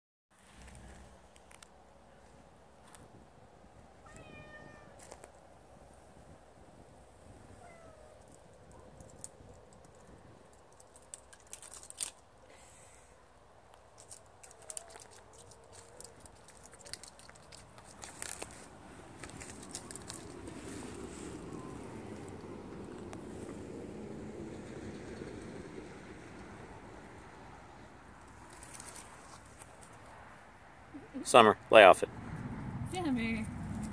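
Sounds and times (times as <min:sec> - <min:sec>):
cat meowing: 0:04.0 - 0:05.0, 0:07.6 - 0:08.2.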